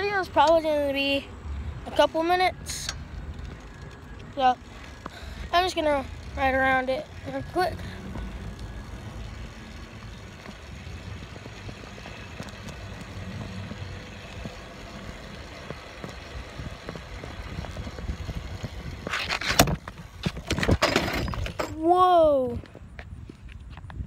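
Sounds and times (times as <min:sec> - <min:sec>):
bicycle tyre rumble: 0:00.0 - 0:24.0
small clicks and rattles: 0:02.7 - 0:08.9
wind on microphone: 0:16.4 - 0:21.6, 0:22.4 - 0:24.0.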